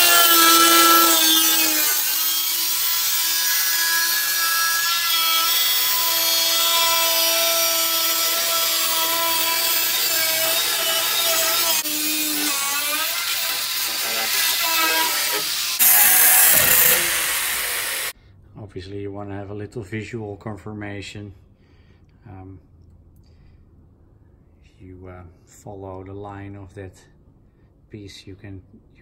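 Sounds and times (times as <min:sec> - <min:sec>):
angle grinder cutting steel: 0:00.0 - 0:18.1.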